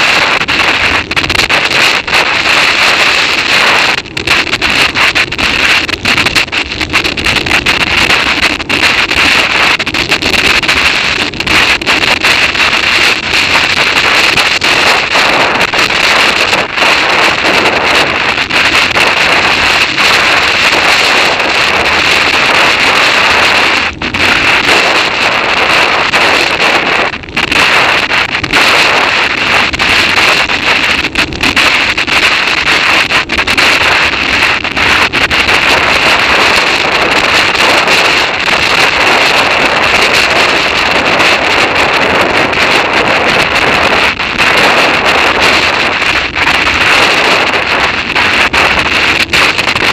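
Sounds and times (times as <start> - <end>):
wind buffeting microphone: 0.0 - 49.9.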